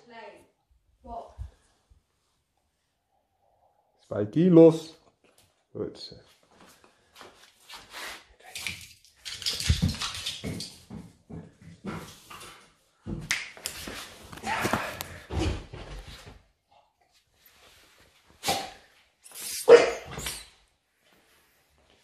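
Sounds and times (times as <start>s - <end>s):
dog barking: 19.6s - 20.2s.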